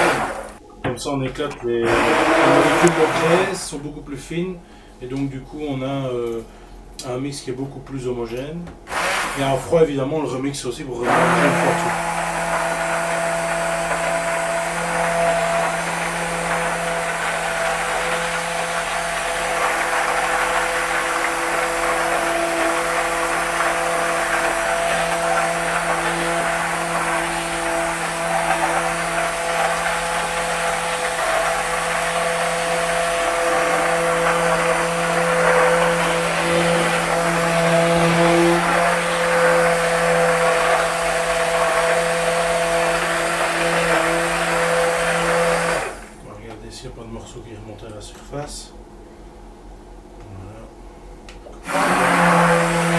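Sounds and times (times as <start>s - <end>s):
immersion blender motor humming: 0.0s - 0.6s, 1.8s - 3.6s, 8.9s - 9.4s, 11.0s - 46.2s, 51.6s - 52.9s.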